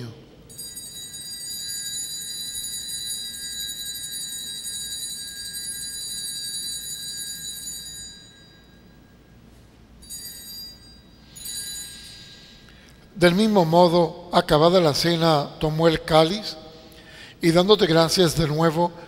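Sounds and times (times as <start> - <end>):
altar bells ringing: 0.0 - 9.4, 10.0 - 14.1.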